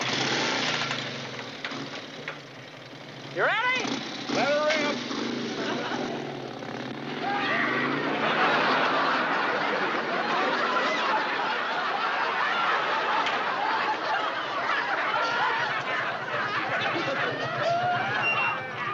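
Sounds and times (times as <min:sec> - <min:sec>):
group of people laughing: 0:05.2 - 0:06.5, 0:07.1 - 0:18.9.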